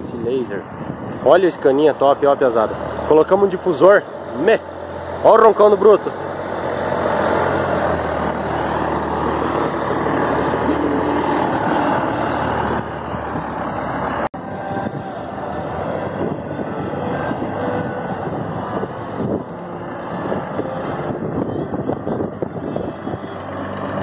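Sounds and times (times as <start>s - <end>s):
truck diesel engine rumbling: 0.0s - 24.0s.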